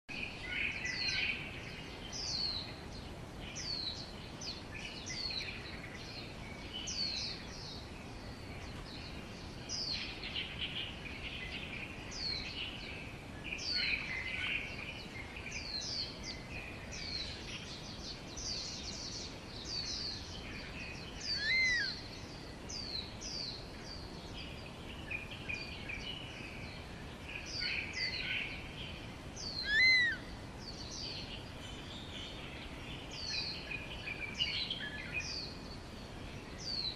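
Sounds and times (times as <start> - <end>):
background noise: 0.1 - 36.9
small birds chirping: 0.1 - 36.9
loud looping bird call: 29.6 - 30.2.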